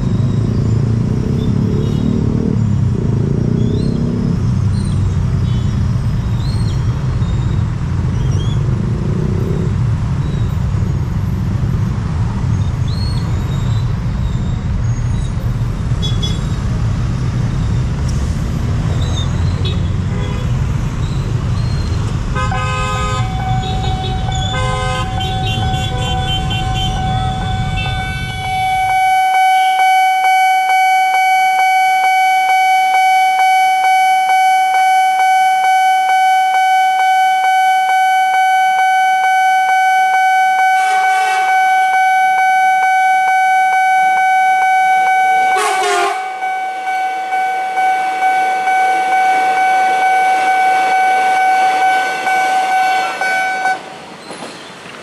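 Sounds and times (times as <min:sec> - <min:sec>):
road traffic: 0:00.0 - 0:55.0
train horn: 0:22.4 - 0:29.8, 0:40.5 - 0:42.9, 0:44.1 - 0:53.8
electric train rumbling: 0:23.2 - 0:29.1, 0:45.5 - 0:55.0.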